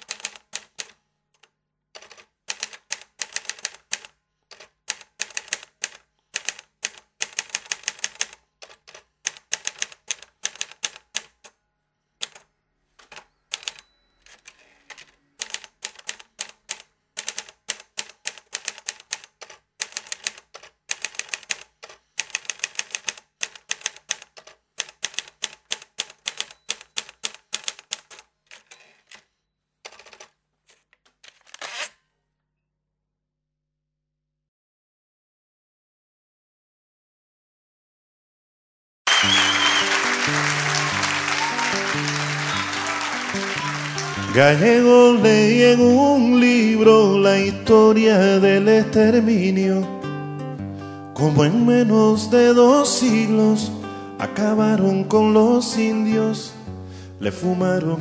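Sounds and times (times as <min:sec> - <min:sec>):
typewriter keys clacking: 0:00.0 - 0:11.5, 0:12.2 - 0:29.3, 0:29.9 - 0:31.8.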